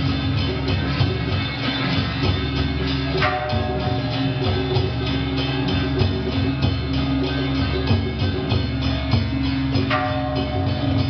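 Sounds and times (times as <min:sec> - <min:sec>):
fast steady drum beat: 0:00.0 - 0:11.0
held melodic notes: 0:00.0 - 0:11.0.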